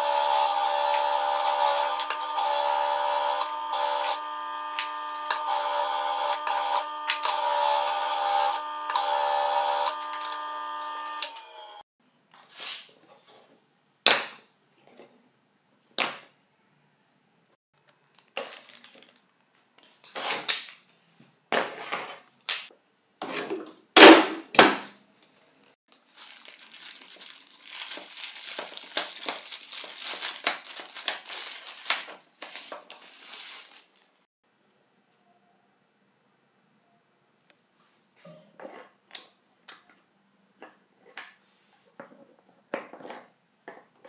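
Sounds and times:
plastic packaging crinkling: 0:18.1 - 0:19.4, 0:25.9 - 0:34.2.

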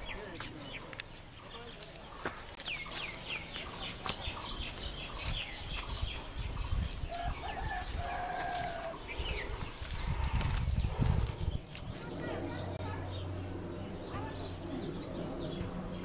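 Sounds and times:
chickens calling: 0:00.0 - 0:16.0
low rumble: 0:05.8 - 0:16.0.

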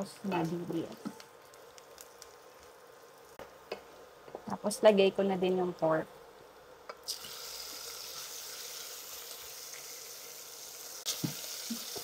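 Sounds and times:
meat sizzling in hot oil: 0:07.0 - 0:12.0.

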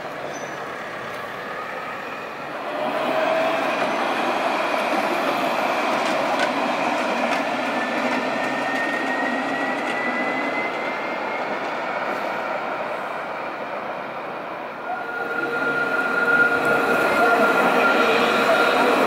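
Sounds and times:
tram rolling rumble: 0:00.0 - 0:19.0.

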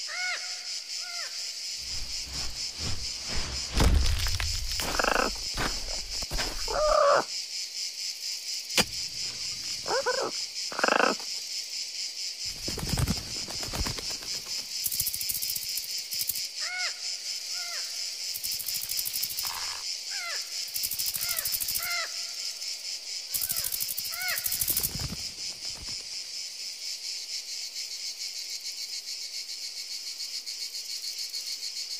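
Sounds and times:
insects chirring: 0:00.0 - 0:31.9.

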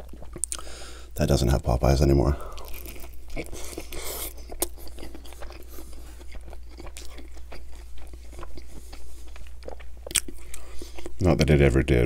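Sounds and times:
person chewing crunchy food: 0:00.0 - 0:01.2, 0:02.4 - 0:11.4
crunchy bite: 0:02.5 - 0:11.1.

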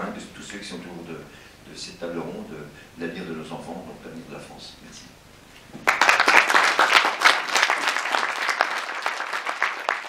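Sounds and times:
audience applauding: 0:05.8 - 0:10.0.

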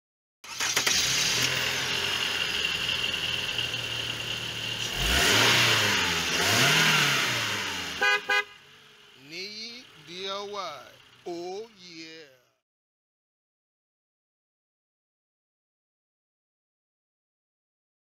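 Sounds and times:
car engine running and revving: 0:00.7 - 0:11.5.

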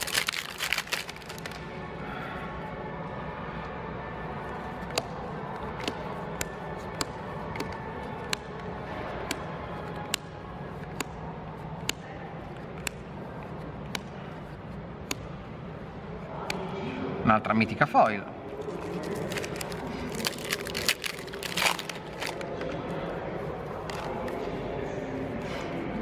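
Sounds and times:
trading cards snapping: 0:00.0 - 0:01.6, 0:10.0 - 0:11.2, 0:18.6 - 0:22.6
steady background noise: 0:00.0 - 0:26.0.

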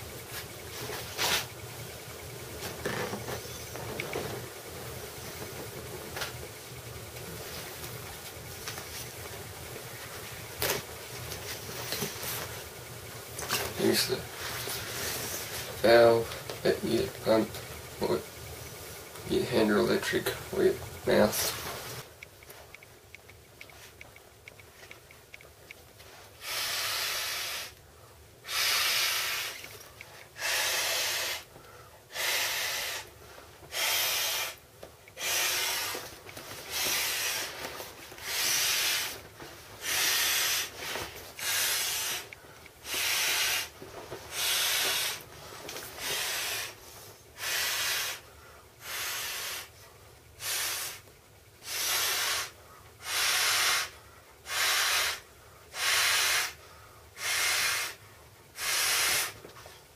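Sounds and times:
breathy puffs into inflatable valve: 0:26.4 - 0:27.8, 0:28.4 - 0:29.7, 0:30.3 - 0:31.5, 0:32.1 - 0:33.1, 0:33.7 - 0:34.6, 0:35.2 - 0:36.1, 0:36.7 - 0:37.6, 0:38.2 - 0:39.2, 0:39.8 - 0:45.2, 0:46.0 - 0:46.8, 0:47.4 - 0:49.8, 0:50.4 - 0:51.0, 0:51.6 - 0:58.0, 0:58.6 - 0:59.4.

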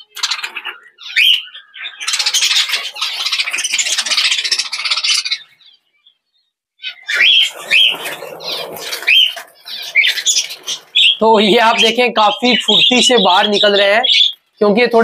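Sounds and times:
budgerigars chirping: 0:00.0 - 0:15.0
wings fluttering against wire: 0:07.1 - 0:11.9.

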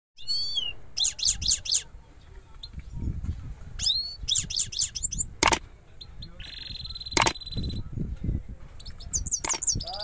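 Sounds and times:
sharp click: 0:05.4 - 0:05.6, 0:07.2 - 0:07.4, 0:09.4 - 0:09.7.

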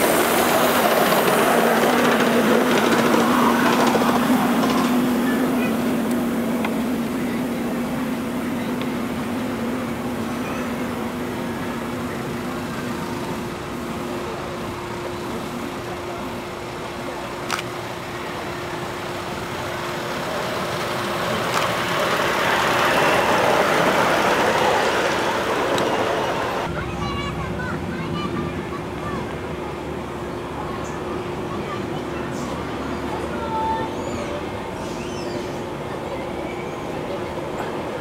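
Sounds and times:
miniature steam locomotive running: 0:00.0 - 0:38.0.

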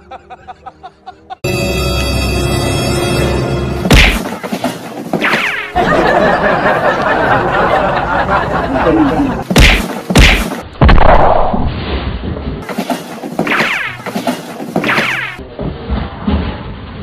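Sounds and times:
loud thumps: 0:03.8 - 0:05.7, 0:09.4 - 0:15.4
noisy scuffle: 0:03.9 - 0:05.7, 0:09.3 - 0:10.7, 0:11.9 - 0:16.7.

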